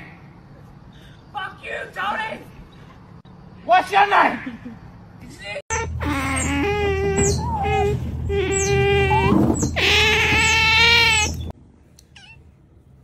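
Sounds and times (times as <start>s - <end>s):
otters whining cries: 5.7s - 11.5s, 12.1s - 12.5s.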